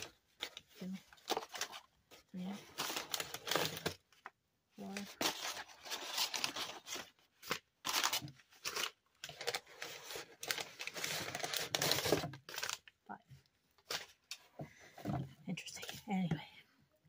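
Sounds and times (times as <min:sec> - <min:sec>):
packing paper rustling and tearing: 0:00.0 - 0:12.9.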